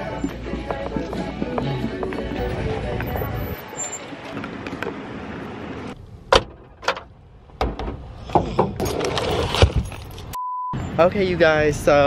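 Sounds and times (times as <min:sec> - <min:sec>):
sharp clunks and knocks: 0:06.3 - 0:09.8.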